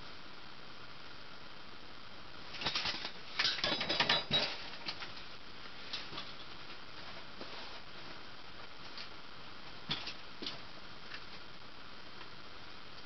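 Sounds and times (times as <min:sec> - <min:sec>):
constant even hiss: 0:00.0 - 0:13.0
sharp clicks and rattles: 0:02.6 - 0:05.2.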